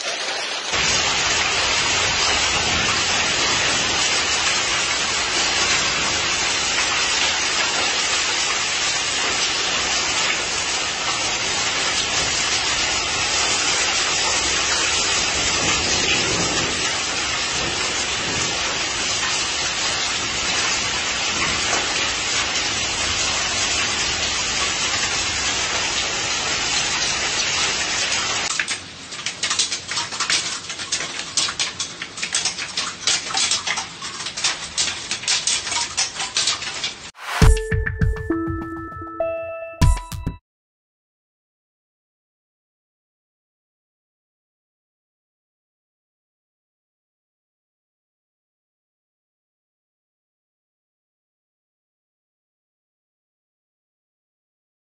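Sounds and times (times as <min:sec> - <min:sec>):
heavy hail falling: 0:00.0 - 0:37.3.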